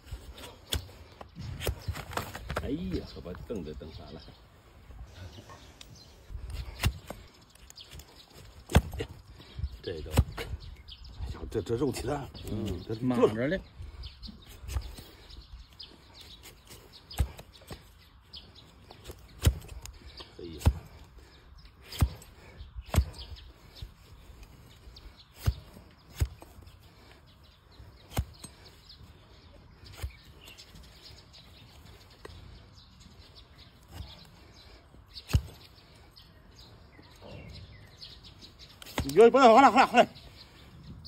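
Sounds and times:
faint birds chirping: 0:00.0 - 0:41.0
blade cutting hoof: 0:18.9 - 0:21.0, 0:35.2 - 0:35.7.

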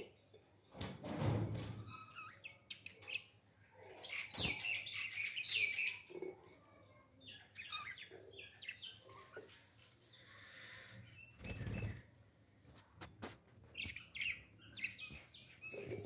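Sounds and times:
thump: 0:01.0 - 0:01.7
parakeets chirping: 0:01.9 - 0:03.4, 0:04.0 - 0:06.2, 0:06.9 - 0:12.1, 0:13.7 - 0:16.0.

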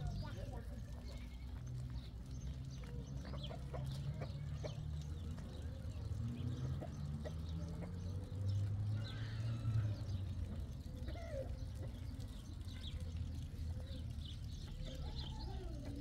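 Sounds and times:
small birds chirping: 0:00.0 - 0:16.0
chickens clucking: 0:02.8 - 0:08.6.

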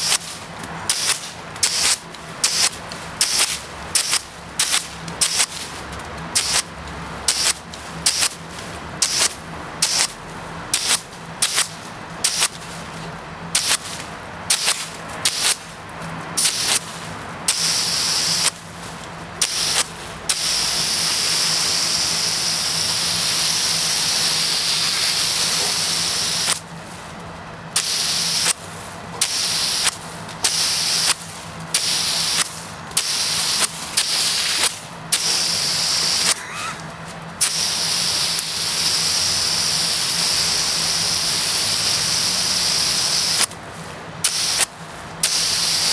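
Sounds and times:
hose water jet hissing: 0:00.0 - 0:15.7, 0:16.3 - 0:45.9.

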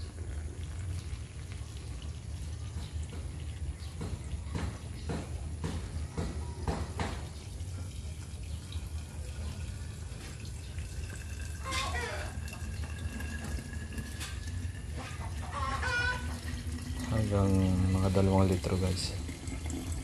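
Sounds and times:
water pouring into plastic bottle: 0:07.3 - 0:20.0.

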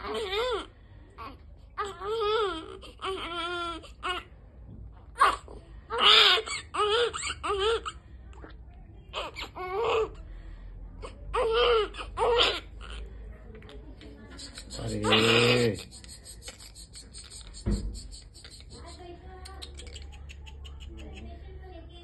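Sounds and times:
newborn baby crying: 0:00.0 - 0:04.3, 0:05.2 - 0:08.0, 0:09.1 - 0:10.3, 0:11.0 - 0:13.1, 0:14.6 - 0:15.8.

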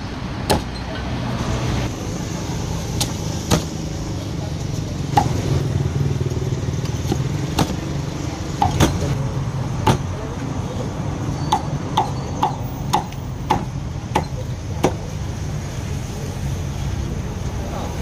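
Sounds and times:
cleaver chopping on wooden block: 0:00.5 - 0:00.7, 0:05.1 - 0:05.4, 0:09.8 - 0:10.1, 0:11.5 - 0:15.0.

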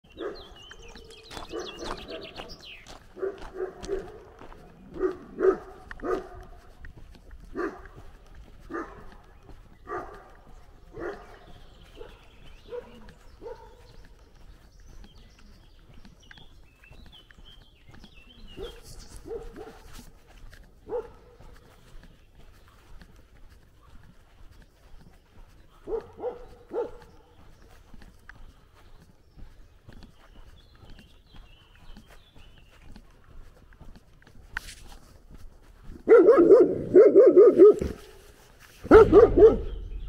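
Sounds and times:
small birds chirping: 0:00.0 - 0:40.0
dog barking: 0:00.1 - 0:06.7, 0:07.4 - 0:14.1, 0:18.5 - 0:20.0, 0:20.8 - 0:21.6, 0:25.8 - 0:27.2, 0:36.0 - 0:38.2, 0:38.8 - 0:40.0.

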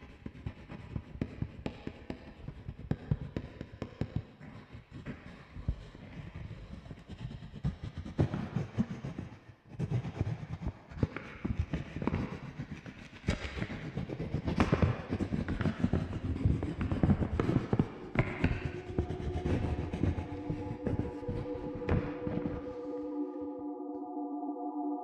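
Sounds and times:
low rumble: 0:17.8 - 0:25.0.

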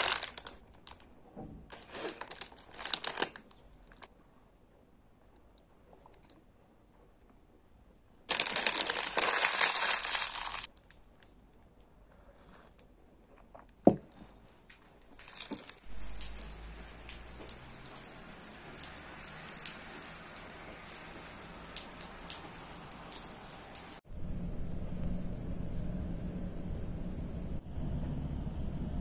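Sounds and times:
steady rain falling: 0:00.0 - 0:01.0, 0:15.2 - 0:24.0
wrapper crinkling: 0:00.0 - 0:01.1, 0:01.7 - 0:04.1, 0:08.3 - 0:10.9, 0:14.9 - 0:18.5.

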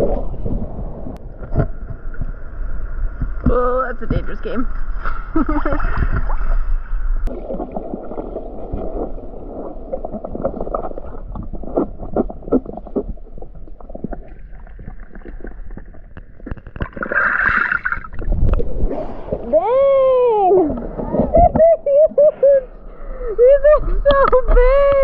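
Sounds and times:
water splash: 0:05.0 - 0:19.7.

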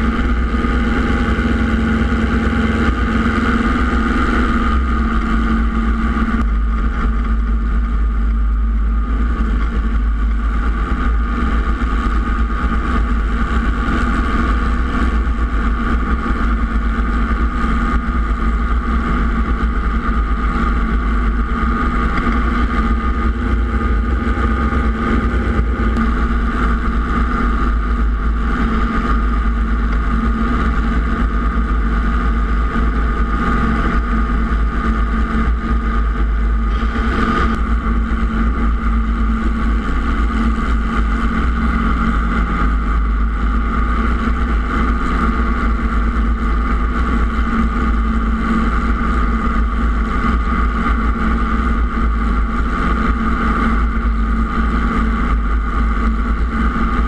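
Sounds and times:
helicopter engine and rotors droning: 0:00.0 - 0:57.0
wind buffeting microphone: 0:00.0 - 0:57.0.

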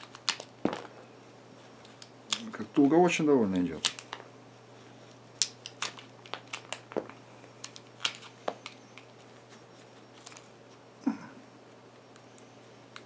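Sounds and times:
sharp clicks and crunches: 0:01.8 - 0:02.8, 0:03.7 - 0:04.2.

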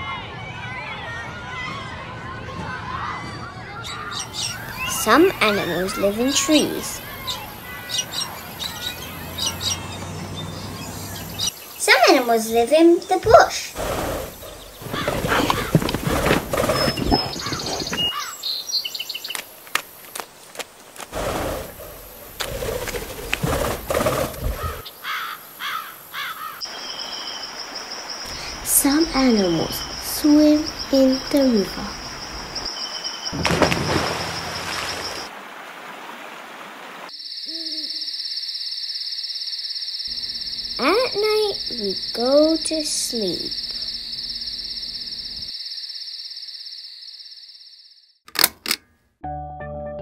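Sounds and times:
high bird chirps: 0:03.7 - 0:11.9, 0:14.2 - 0:19.4
crickets chirping: 0:04.2 - 0:35.4, 0:36.6 - 0:48.2
rough pulsing animal call: 0:13.8 - 0:18.3.

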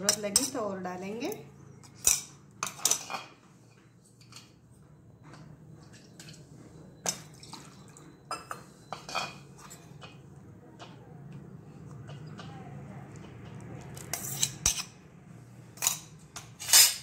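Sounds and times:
water dripping and sloshing: 0:07.1 - 0:08.3.

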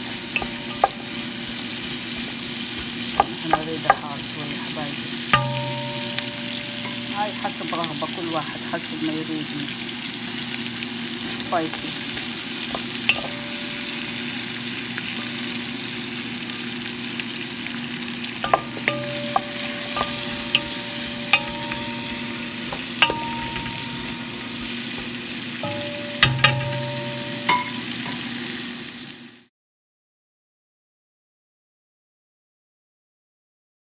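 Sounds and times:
spoon clinking against pot: 0:00.0 - 0:04.2, 0:05.4 - 0:07.9, 0:11.7 - 0:14.4, 0:18.4 - 0:28.4
vegetables sizzling in a pot: 0:00.0 - 0:29.5.

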